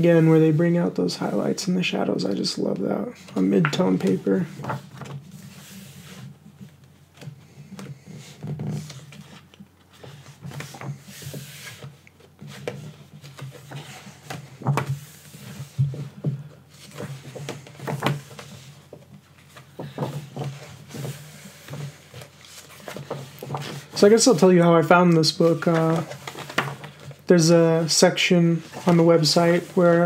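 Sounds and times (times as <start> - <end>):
book pages rustling: 2.4 - 30.0.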